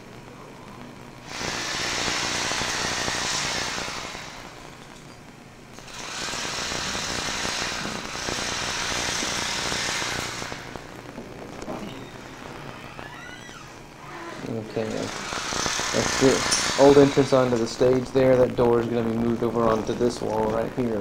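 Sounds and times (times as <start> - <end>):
power tool hissing: 1.2 - 4.8, 5.8 - 10.9, 14.4 - 17.6.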